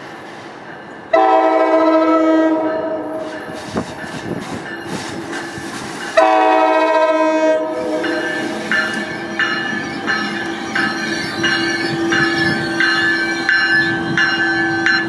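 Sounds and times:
low train rumble: 0:00.0 - 0:15.0
locomotive air horn blasts: 0:01.1 - 0:03.2, 0:06.2 - 0:08.2.

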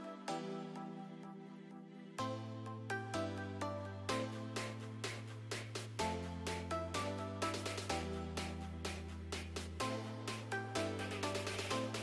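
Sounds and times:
soft background music chords: 0:00.0 - 0:12.0.

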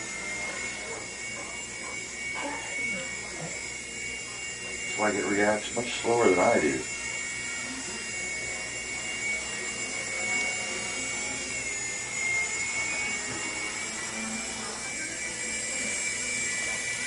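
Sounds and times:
small helicopter rotor whine: 0:00.0 - 0:17.0.

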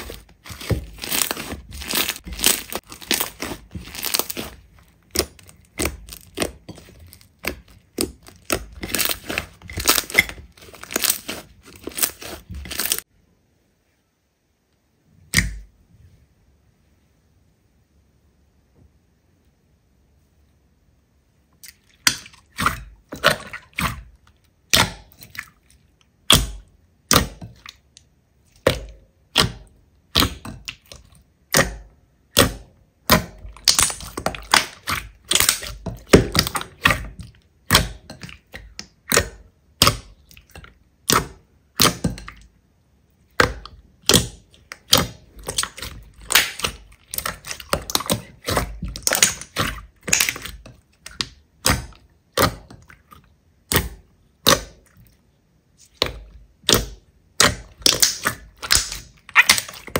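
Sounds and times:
slime popping and crackling: 0:00.0 - 0:13.0, 0:28.6 - 0:42.4, 0:43.3 - 0:52.8, 0:55.8 - 0:59.9.

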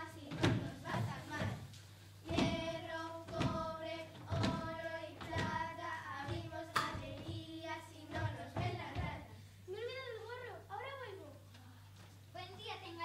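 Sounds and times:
children singing: 0:02.3 - 0:09.3.

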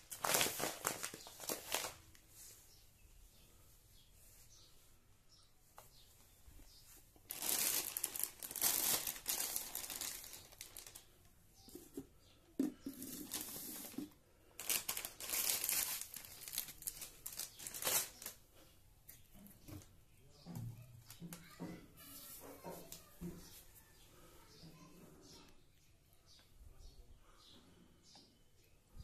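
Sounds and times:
plastic packaging crinkling: 0:00.0 - 0:02.2, 0:07.2 - 0:11.2, 0:12.8 - 0:18.4.

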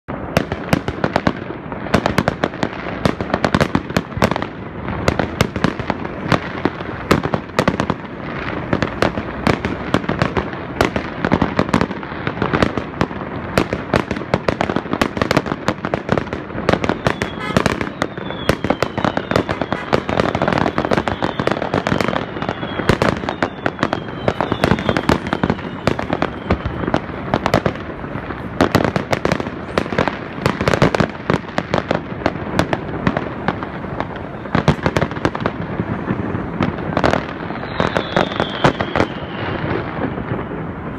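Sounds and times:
fireworks bangs and crackles: 0:00.1 - 0:40.9
falling firework whistles: 0:16.7 - 0:31.1, 0:34.0 - 0:40.9.

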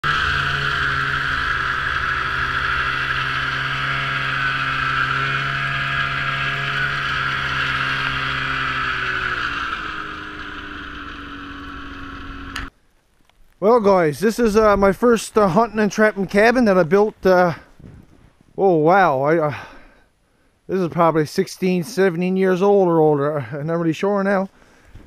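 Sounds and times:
rushing noise of track: 0:00.0 - 0:12.7
snowmobile engine running: 0:00.0 - 0:12.7, 0:14.2 - 0:17.6.

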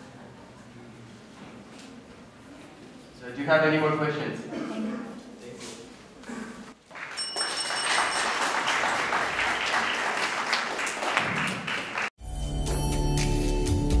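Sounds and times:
audience applauding: 0:06.8 - 0:12.2
music: 0:12.2 - 0:14.0.

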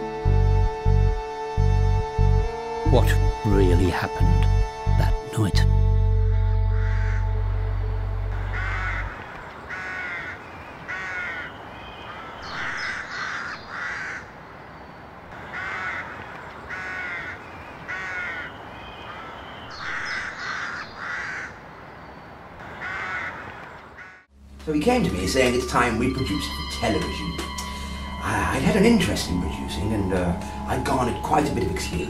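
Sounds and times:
deep low drone: 0:04.3 - 0:09.2, 0:24.4 - 0:32.0
crows cawing: 0:06.5 - 0:14.5, 0:15.2 - 0:21.7, 0:22.5 - 0:24.3, 0:27.4 - 0:28.2.

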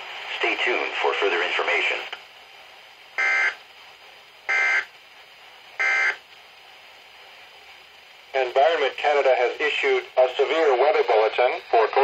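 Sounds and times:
faint radio hiss: 0:00.0 - 0:12.0
two-tone digital data warble: 0:03.2 - 0:03.6, 0:05.8 - 0:06.2.

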